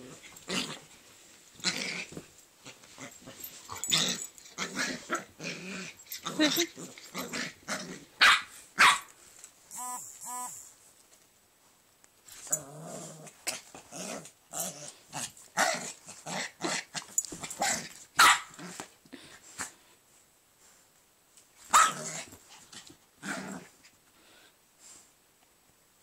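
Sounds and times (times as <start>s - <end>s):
dogs barking and growling: 1.6s - 9.0s, 21.7s - 22.4s
high-pitched dog calls: 9.7s - 10.6s.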